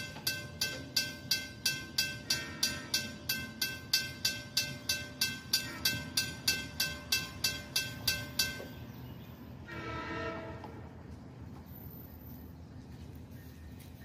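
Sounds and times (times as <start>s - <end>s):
railroad crossing bell ringing: 0.0s - 10.3s
train horn: 2.3s - 3.0s, 9.6s - 11.0s.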